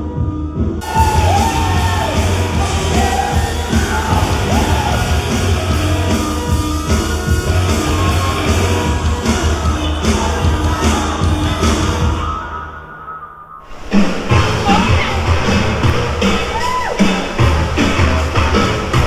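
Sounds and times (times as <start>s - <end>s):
shouted vocals: 0.8s - 5.7s
loud rock music: 0.8s - 12.3s, 13.8s - 19.0s.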